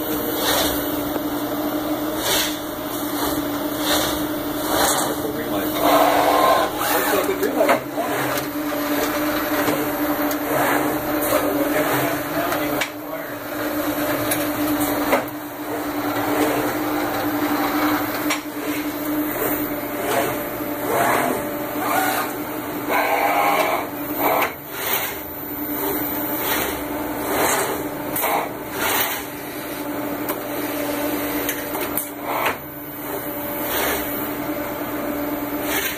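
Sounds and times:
printer machine hum: 0.0 - 35.9
short noisy mechanical bursts: 18.6 - 25.2.

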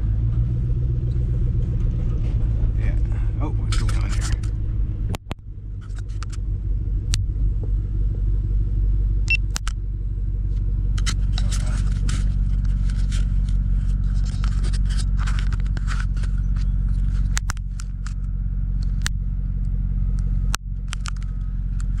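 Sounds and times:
truck engine running: 0.0 - 22.0
clicks rattles and scrapes: 3.6 - 4.6, 5.8 - 6.4, 10.9 - 19.1.

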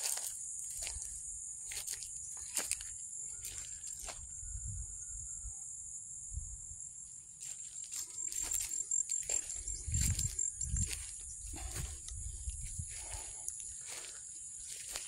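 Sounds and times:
footsteps through grass: 0.0 - 4.3, 7.4 - 15.0
high-pitched insect chorus: 0.0 - 15.0
rustling grass: 7.4 - 15.0.

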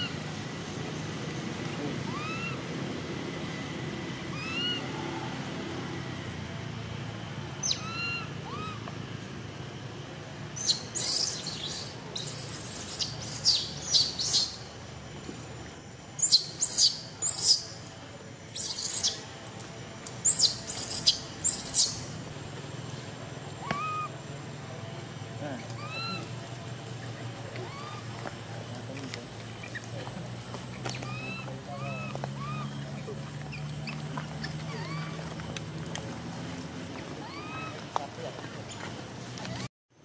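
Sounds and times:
short chirping animal calls: 2.0 - 2.6, 4.3 - 5.0, 7.6 - 8.8, 10.6 - 14.6, 16.2 - 17.8, 18.6 - 19.2, 20.2 - 22.1, 23.6 - 24.1, 25.6 - 26.3, 27.6 - 28.1, 30.8 - 35.3
whistled animal calls: 2.0 - 2.7, 4.3 - 5.2, 7.6 - 8.8, 10.6 - 14.6, 20.2 - 22.1, 23.6 - 24.1, 25.6 - 26.4, 27.1 - 28.1, 30.8 - 35.3, 37.2 - 37.9.

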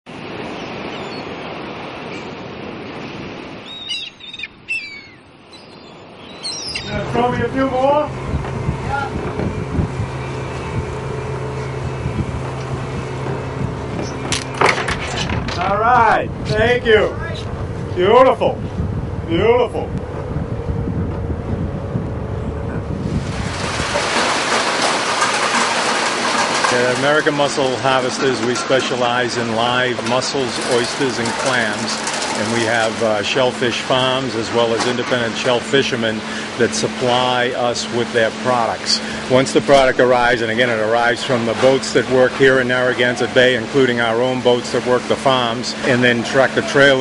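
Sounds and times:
rushing wind: 0.1 - 33.5
short bird calls: 3.6 - 7.0
boat motor rumble: 6.0 - 47.0
rushing water: 22.9 - 47.0
mussel shells tumbling over machinery: 23.2 - 27.8, 30.0 - 33.2.

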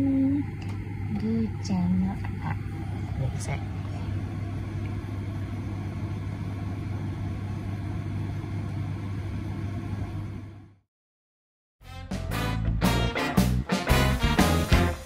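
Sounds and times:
low rumble and hum: 0.0 - 10.7.

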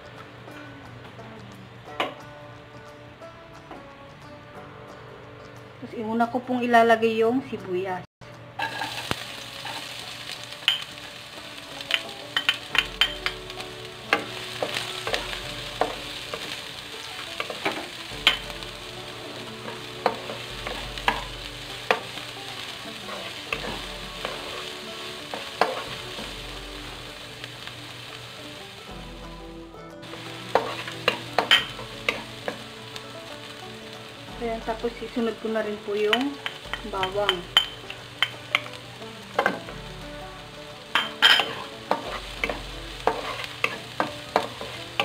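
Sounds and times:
onions sizzling in hot oil: 8.4 - 45.0
spatula tapping and scraping pan: 10.7 - 11.0, 11.8 - 13.4, 14.0 - 18.7, 19.5 - 26.4, 30.2 - 32.7, 36.1 - 38.7, 41.0 - 45.0.

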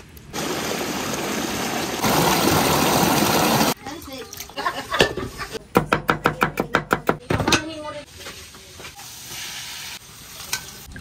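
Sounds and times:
food sizzling in hot oil: 0.0 - 3.8, 8.1 - 11.0.

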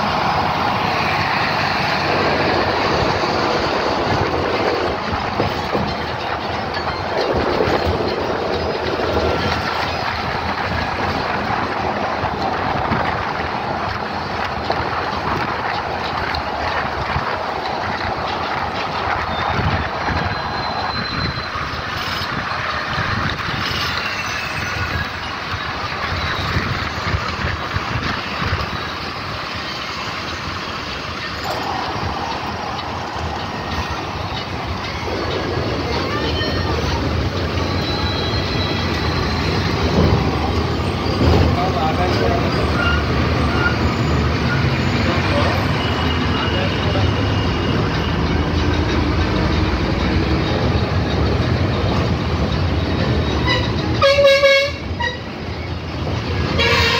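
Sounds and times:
wind rush through window: 0.0 - 37.8
engine and tyre road noise: 0.0 - 56.9.

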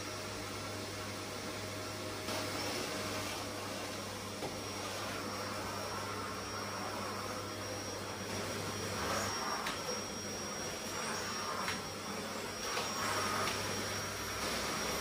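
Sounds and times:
vacuum cleaner running: 0.0 - 15.0
vacuum head pushed over rug: 12.5 - 15.0.

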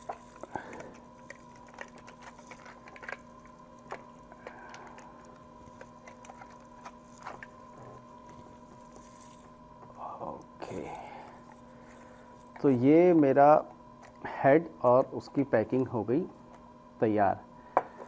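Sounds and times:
aluminium foil crinkling: 0.0 - 9.8
faint steady hum: 0.0 - 18.0.

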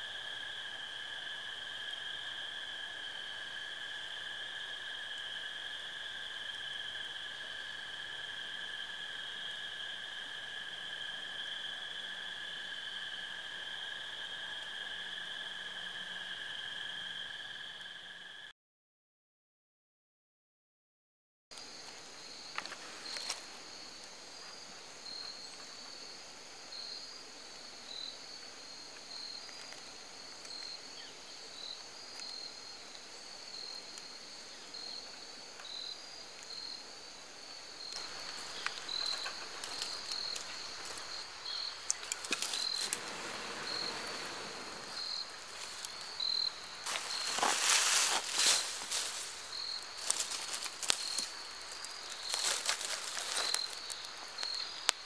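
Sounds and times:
crickets chirping: 0.0 - 18.5, 21.5 - 55.0
dry leaves and twigs rustling: 22.5 - 23.8, 38.0 - 55.0.

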